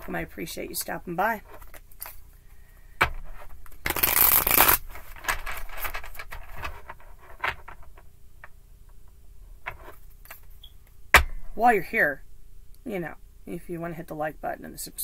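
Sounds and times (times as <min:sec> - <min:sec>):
cards shuffling: 0:03.0 - 0:07.9
card clicks and rustles: 0:03.1 - 0:07.8.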